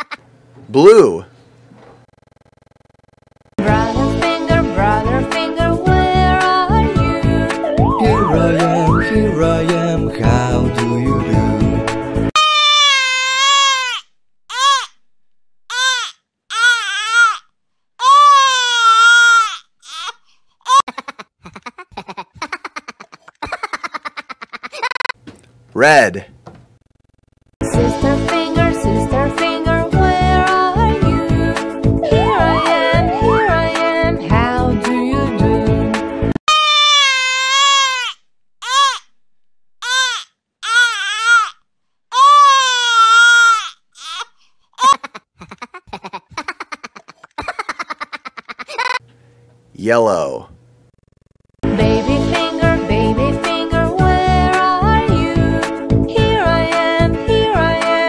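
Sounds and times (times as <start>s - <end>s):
baby laughing: 0.0s - 0.2s, 18.0s - 25.1s, 42.2s - 49.0s
baby crying: 12.4s - 15.0s, 15.7s - 23.4s, 32.0s - 33.6s, 36.5s - 39.0s, 39.8s - 47.6s.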